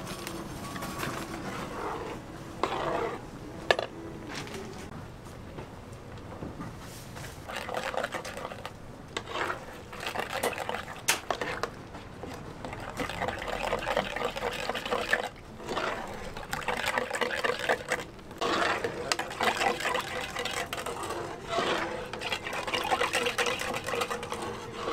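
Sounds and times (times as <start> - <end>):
thick sauce sloshing in a pan: 7.4 - 24.9.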